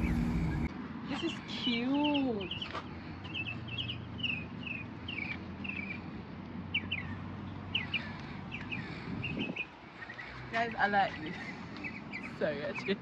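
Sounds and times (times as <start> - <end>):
steady low hum: 0.0 - 0.7.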